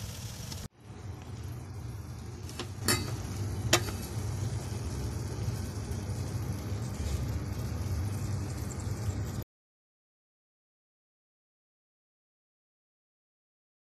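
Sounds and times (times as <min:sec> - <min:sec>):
low mechanical hum: 0:00.0 - 0:09.4.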